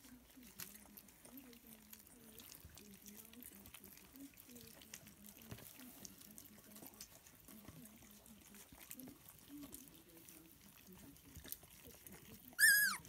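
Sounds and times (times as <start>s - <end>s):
puppies lapping and smacking: 0.0s - 13.0s
puppies grunting: 11.7s - 13.0s.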